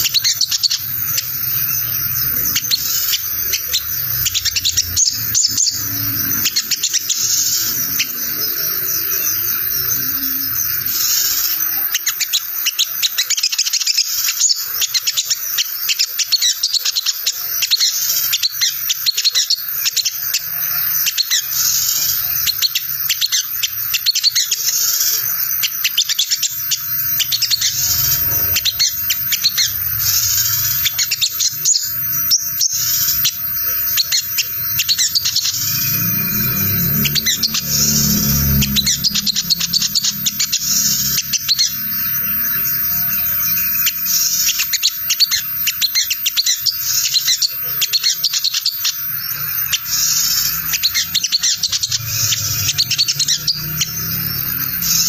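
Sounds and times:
bird high twittering chatter: 0.0 - 55.0
low hum: 34.1 - 43.7.

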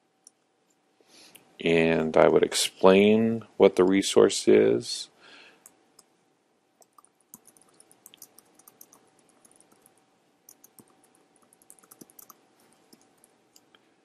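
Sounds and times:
faint typing on keyboard: 6.8 - 13.9.

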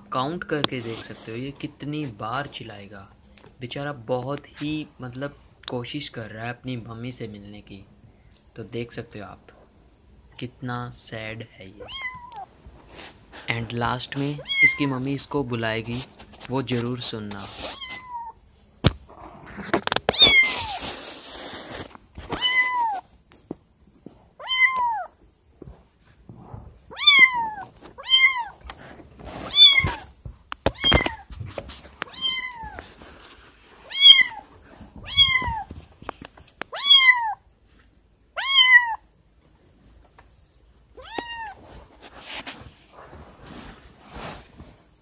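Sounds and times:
rustling: 0.3 - 3.4, 11.8 - 25.0, 25.6 - 38.0, 39.4 - 45.0
kitten meowing: 11.8 - 12.5, 14.4 - 14.9, 17.7 - 18.4, 20.1 - 20.8, 22.3 - 23.0, 24.4 - 25.1, 26.9 - 28.6, 29.5 - 30.1, 30.7 - 31.3, 32.0 - 32.8, 33.9 - 34.4, 35.0 - 35.7, 36.6 - 37.4, 38.4 - 39.0, 41.0 - 41.6.

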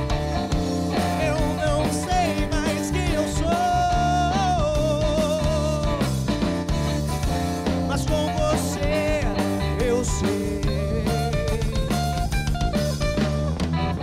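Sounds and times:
man singing: 0.0 - 6.4, 7.6 - 12.3
drum kit: 0.0 - 14.0
electric guitars: 0.0 - 14.0.

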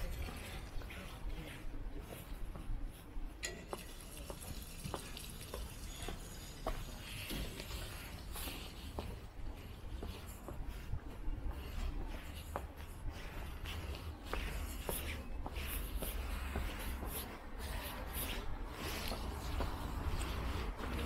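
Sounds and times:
footsteps on stone: 0.0 - 21.0.

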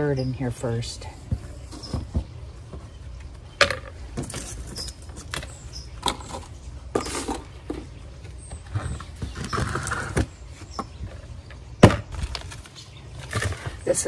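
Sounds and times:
scraping rustle: 4.2 - 10.8.

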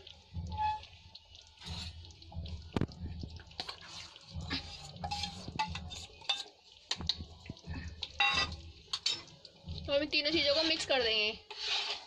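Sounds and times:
metal utensils clinking on metal pot: 3.6 - 7.2, 8.0 - 9.4, 10.4 - 12.0.

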